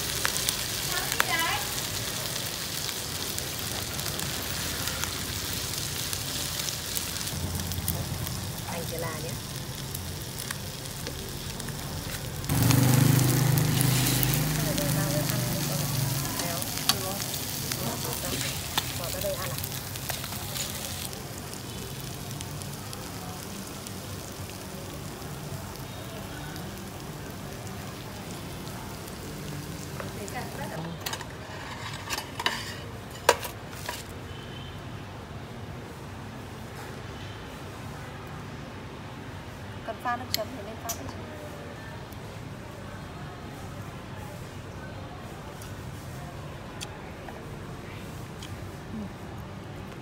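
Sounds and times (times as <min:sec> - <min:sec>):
fish sizzling in oil: 0:00.0 - 0:34.7.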